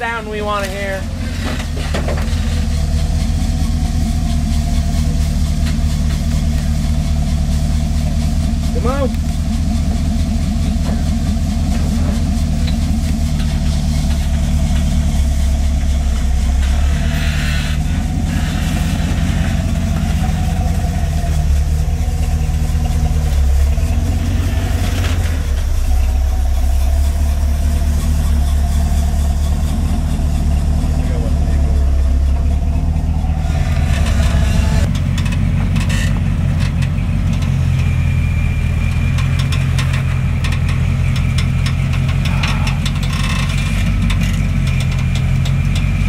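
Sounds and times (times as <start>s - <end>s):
truck engine running at low revs: 0.0s - 46.0s.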